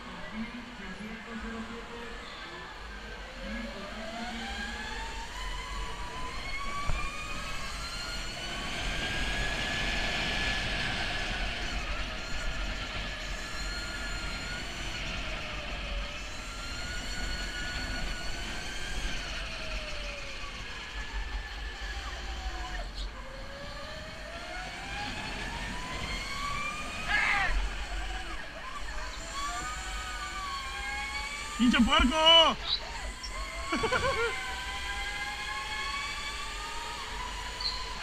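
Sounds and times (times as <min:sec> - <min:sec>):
rumble of tyres and wind: 0:00.0 - 0:31.5
electric go-kart motor whine: 0:00.0 - 0:38.0.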